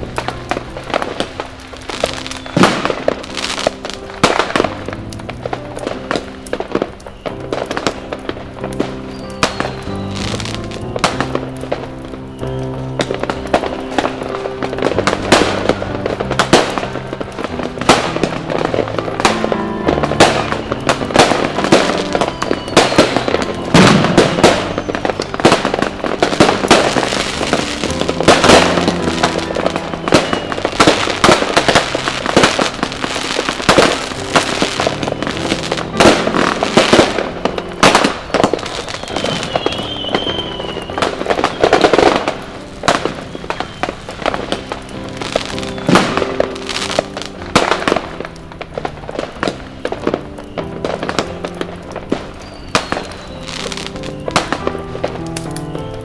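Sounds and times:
background music: 0.0 - 56.0
fireworks banging: 0.0 - 56.0.

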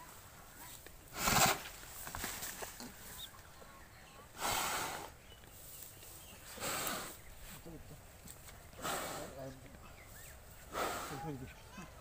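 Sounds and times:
buffalo heavy nasal breaths: 4.3 - 5.2, 6.4 - 7.4, 8.7 - 9.6, 10.5 - 11.5.

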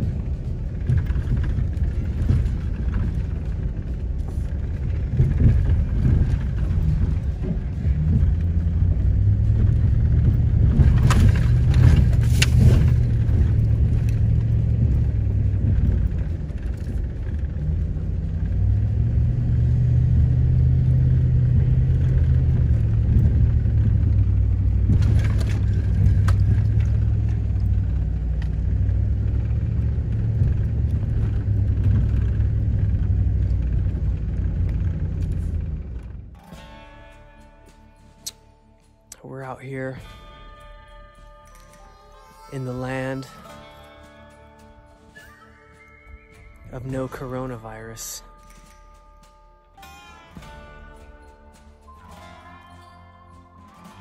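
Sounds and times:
knocks and rattles: 0.0 - 38.2
truck engine and tyres rumbling: 0.0 - 54.0.

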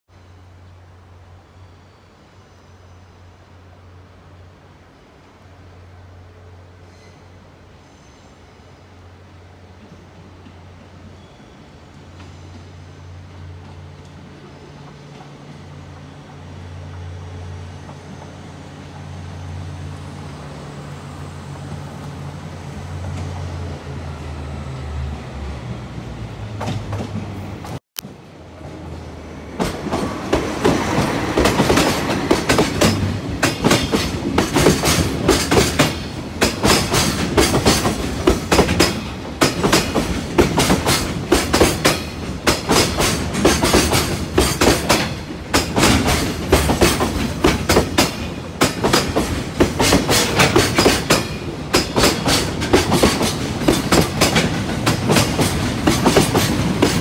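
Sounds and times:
diesel locomotive engine drone: 0.1 - 57.0
train wheels clattering: 29.6 - 57.0.

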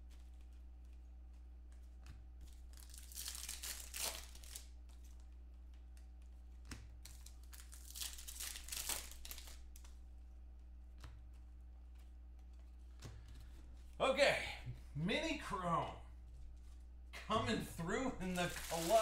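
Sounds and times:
foil wrappers crinkling and tearing: 2.5 - 4.8, 7.0 - 9.9, 18.1 - 19.0.

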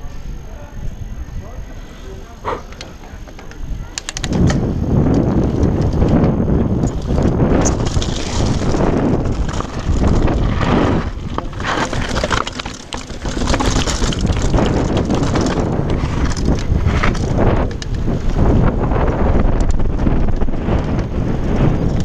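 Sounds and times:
wind buffeting microphone: 0.0 - 22.0
bike parts clattering: 5.5 - 18.2.

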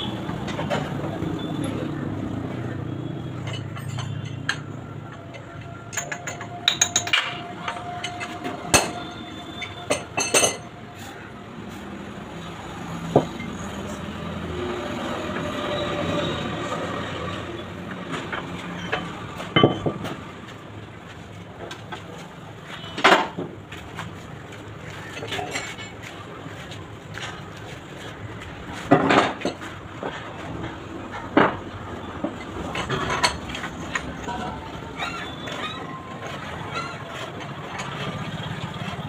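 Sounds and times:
sharp metallic clinks and knocks: 3.3 - 10.8.

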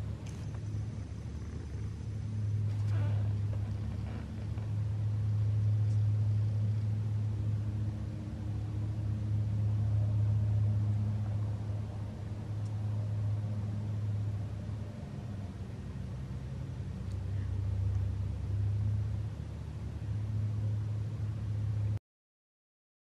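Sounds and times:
cat purring: 0.2 - 4.8.

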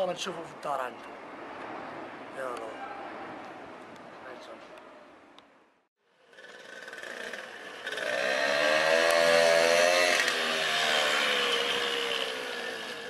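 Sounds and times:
moped engine passing by: 6.2 - 13.0.

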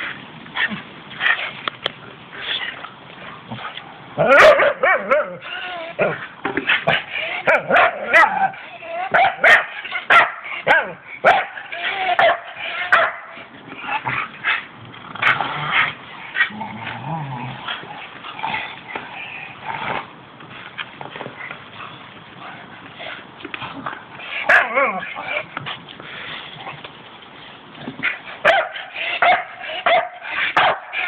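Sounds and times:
dogs barking: 4.2 - 5.4, 6.8 - 13.5, 24.4 - 25.4, 28.4 - 31.0.

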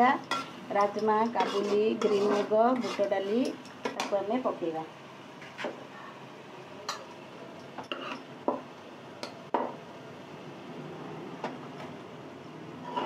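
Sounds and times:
metal spatula scraping a pan: 0.2 - 4.1, 7.8 - 8.3, 12.8 - 13.0.

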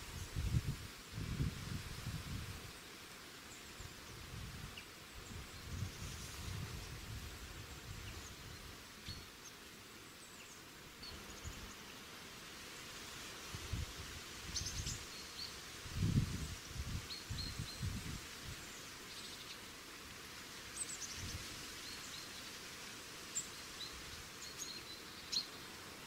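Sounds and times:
steady hiss: 0.0 - 26.0.

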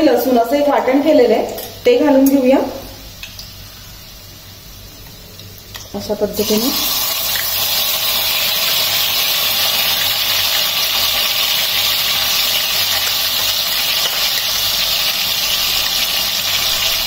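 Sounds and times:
paste sizzling in hot oil: 5.7 - 17.0.

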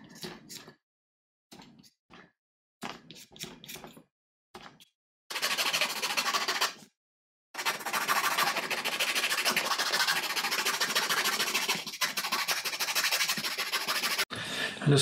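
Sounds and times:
knife scraping wood: 7.6 - 14.3.

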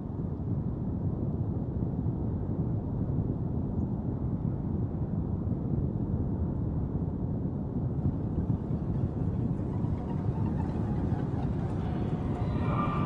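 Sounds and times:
low rumbling drone: 7.8 - 13.0.

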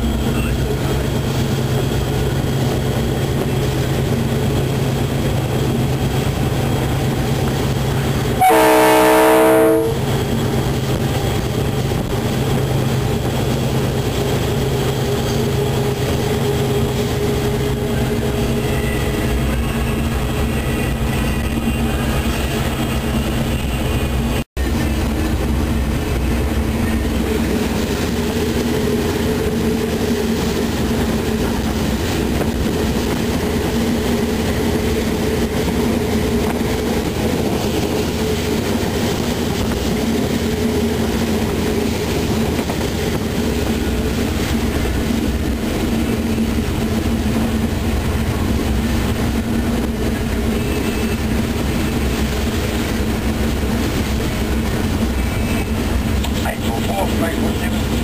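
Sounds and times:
locomotive engine drone: 0.0 - 58.0
wheels rumbling on rails: 0.0 - 58.0.

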